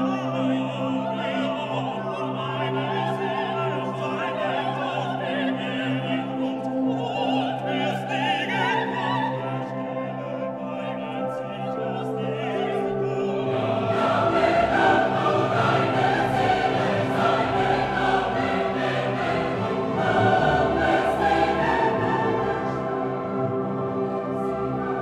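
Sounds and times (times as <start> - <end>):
orchestral music: 12.0 - 25.0
choir singing held notes: 13.3 - 25.0.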